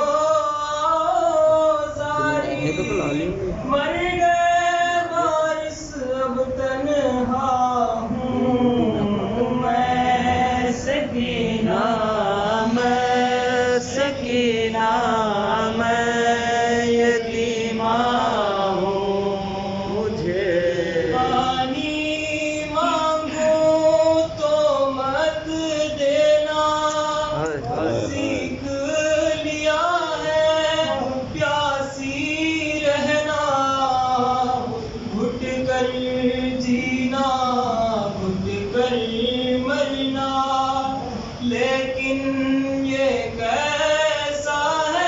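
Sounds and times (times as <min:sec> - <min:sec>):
man chanting unaccompanied: 0:00.0 - 0:45.0.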